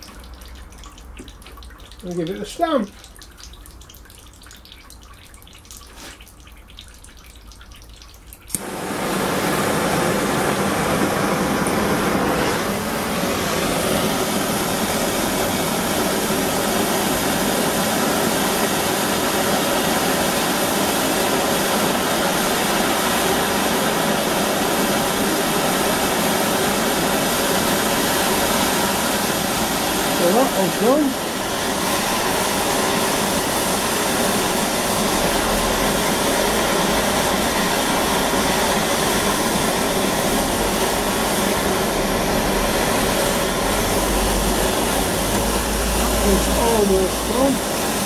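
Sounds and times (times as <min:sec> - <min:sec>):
water trickling: 0:00.0 - 0:08.6
blowtorch hissing: 0:08.5 - 0:48.0.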